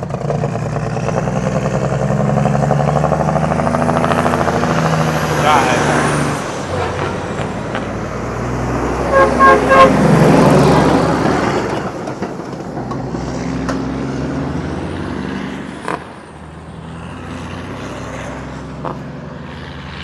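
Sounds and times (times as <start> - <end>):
diesel truck engine running: 0.0 - 17.6
vehicle horn toots: 9.1 - 10.3.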